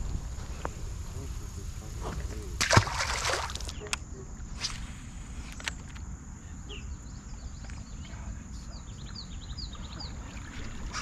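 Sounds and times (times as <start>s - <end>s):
wind: 0.0s - 11.0s
water around legs: 2.2s - 3.8s
bird chirping: 5.5s - 11.0s.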